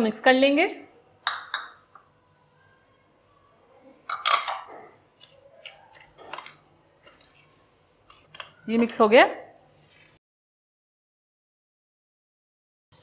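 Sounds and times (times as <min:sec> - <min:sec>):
metal spoon clinking ceramic bowl: 0:01.2 - 0:01.8.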